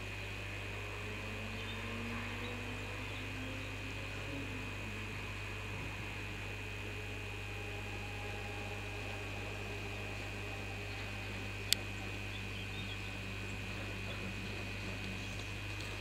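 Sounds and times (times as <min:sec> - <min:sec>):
high-pitched whine: 0:00.0 - 0:16.0
low hum and hiss: 0:00.0 - 0:16.0.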